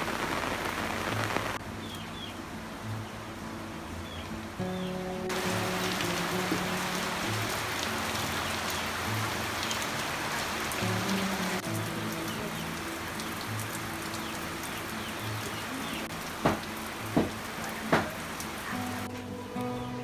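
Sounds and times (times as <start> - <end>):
rain on leaves and ground: 0.0 - 20.0
soft slow background music: 1.6 - 20.0.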